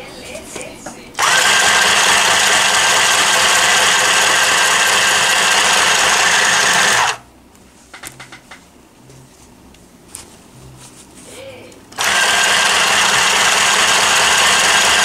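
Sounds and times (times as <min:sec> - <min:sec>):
electric sewing machine running: 0:01.2 - 0:07.2, 0:12.0 - 0:15.0.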